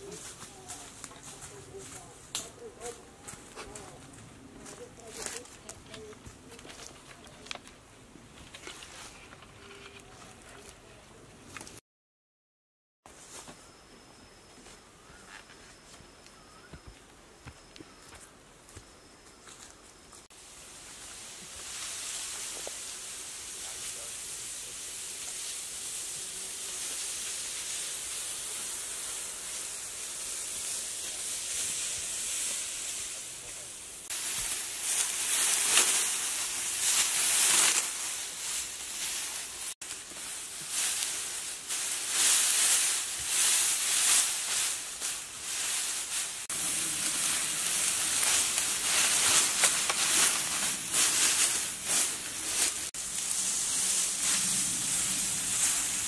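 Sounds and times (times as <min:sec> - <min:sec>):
dry grass rustling and crunching: 0:00.0 - 0:10.9, 0:19.5 - 0:56.0
outdoor hiss: 0:19.5 - 0:56.0.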